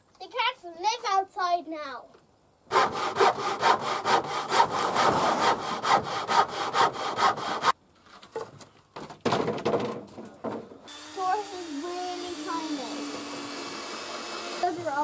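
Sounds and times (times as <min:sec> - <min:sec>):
handsaw cutting wood: 0:02.7 - 0:07.8, 0:10.9 - 0:15.0
rubbing and scraping on wood: 0:02.7 - 0:08.8.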